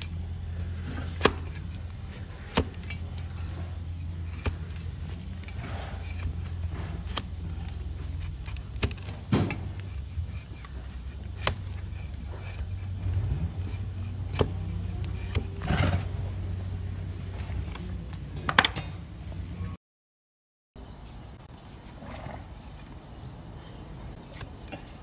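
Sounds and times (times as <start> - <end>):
steady low hum: 0.0 - 19.8.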